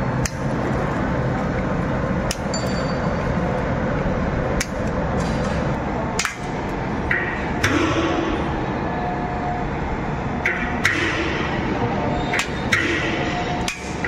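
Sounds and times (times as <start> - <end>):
workshop noise: 0.0 - 14.0
metal tools clinking on steel: 2.5 - 3.3.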